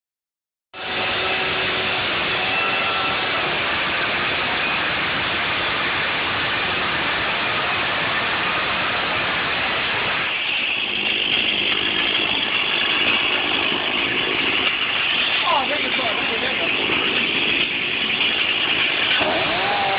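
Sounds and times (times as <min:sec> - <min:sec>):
chainsaw cutting through door: 0:16.5 - 0:19.9.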